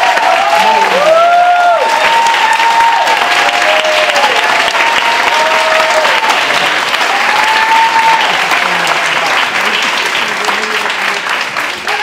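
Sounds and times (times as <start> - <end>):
crowd applauding: 0.0 - 12.0
long whoops: 0.1 - 6.2, 7.1 - 8.4.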